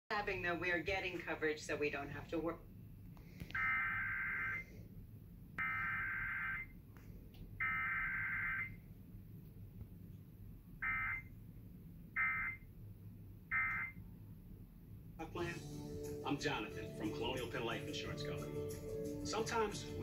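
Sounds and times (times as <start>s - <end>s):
emergency alert data bursts: 3.6s - 4.7s, 5.6s - 6.8s, 7.6s - 8.8s, 10.8s - 11.3s, 12.2s - 12.7s, 13.5s - 14.0s.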